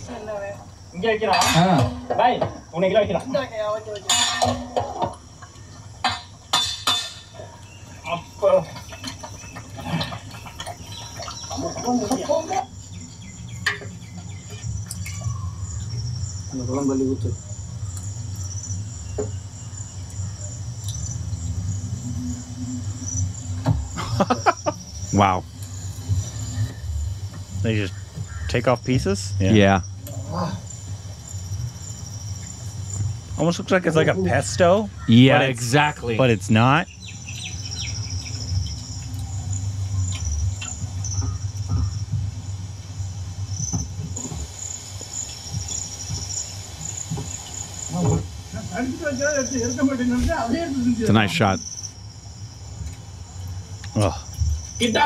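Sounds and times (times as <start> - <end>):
insects chirring: 0.0 - 55.0
low steady hum: 0.0 - 55.0
steady low rumble: 12.7 - 47.0.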